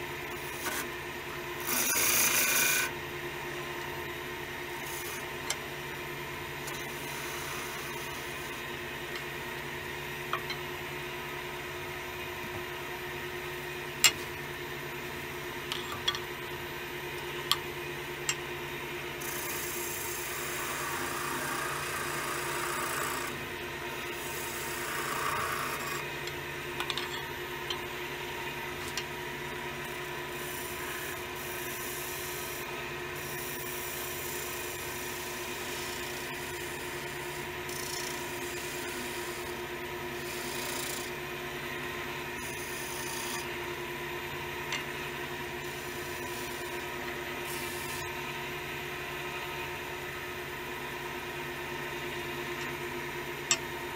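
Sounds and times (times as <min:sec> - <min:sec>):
turning tool cutting wood: 0:00.4 - 0:00.9, 0:01.5 - 0:03.0, 0:04.7 - 0:05.6, 0:06.6 - 0:09.3, 0:19.2 - 0:23.4, 0:24.0 - 0:26.3, 0:29.7 - 0:41.2, 0:42.4 - 0:43.6, 0:45.6 - 0:48.2
wood lathe humming: 0:00.4 - 0:00.9, 0:01.5 - 0:02.9, 0:04.6 - 0:10.0, 0:19.2 - 0:26.4, 0:28.2 - 0:41.2, 0:41.8 - 0:43.8, 0:44.7 - 0:48.7.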